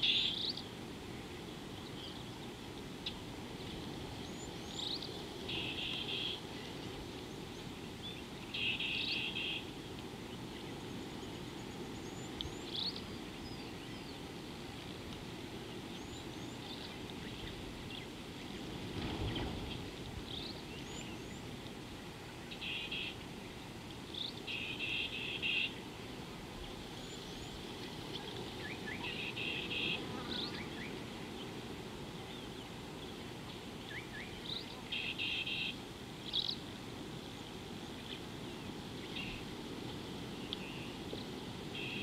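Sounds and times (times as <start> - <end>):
birds chirping: 1.4 - 14.3, 22.3 - 23.3, 24.1 - 25.9, 26.6 - 36.7, 40.3 - 42.0.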